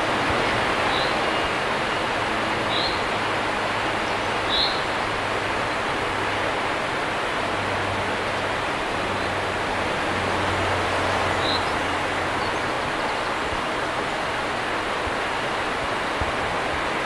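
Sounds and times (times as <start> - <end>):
river water rushing over weir: 0.0 - 17.0
bird chirp: 4.5 - 4.9.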